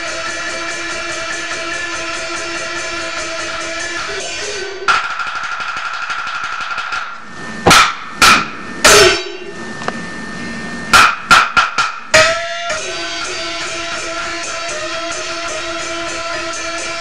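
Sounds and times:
cymbal crashes: 6.9 - 9.8, 10.9 - 17.0
gong strikes ringing: 7.7 - 9.8.

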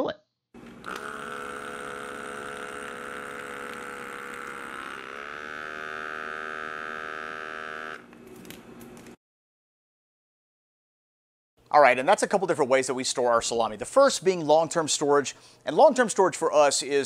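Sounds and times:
vacuum pump motor whine: 0.6 - 8.9.

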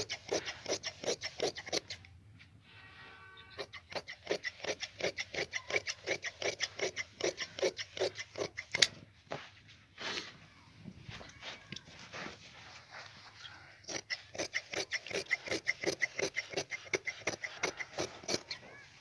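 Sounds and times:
shears snipping through cloth: 0.0 - 2.1, 3.6 - 10.3, 11.2 - 19.0.

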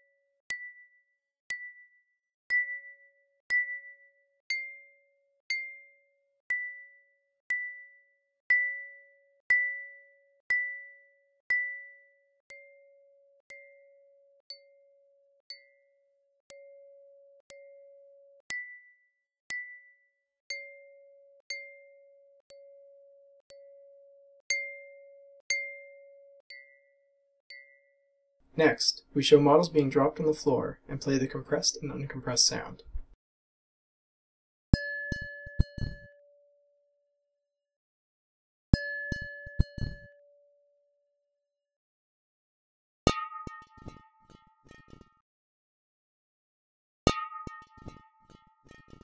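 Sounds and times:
synthesized wine glass tapping: 0.5 - 15.9, 16.5 - 18.9, 19.5 - 19.9, 20.5 - 28.0, 34.8 - 36.1, 38.8 - 40.1.

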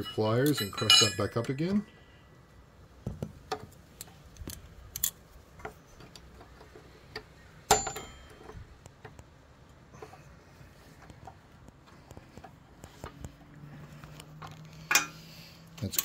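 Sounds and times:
sharp ringing clink: 0.0 - 1.4, 7.7 - 8.4.

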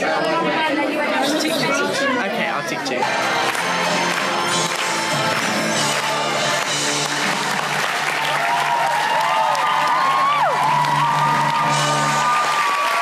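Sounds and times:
audience applauding: 3.0 - 13.0.

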